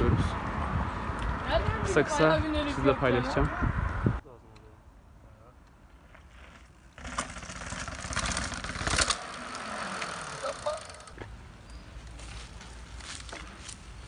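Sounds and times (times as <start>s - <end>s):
bike rattling: 6.0s - 14.0s.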